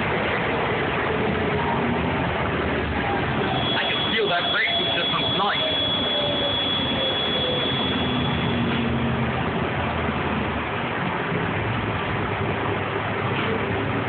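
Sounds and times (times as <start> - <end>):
steady high whine: 0.0 - 10.5
bus drive noise from inside: 0.0 - 14.0.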